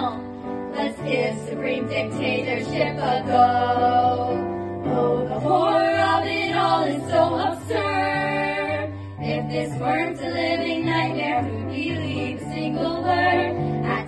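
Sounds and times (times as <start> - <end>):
group of voices singing: 0.0 - 14.0.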